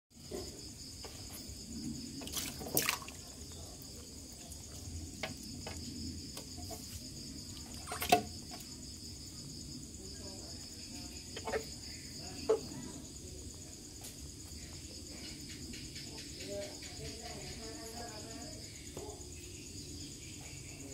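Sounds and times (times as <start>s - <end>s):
water sloshing in a plastic tub: 0.2s - 15.3s
high insect trill: 0.2s - 20.9s.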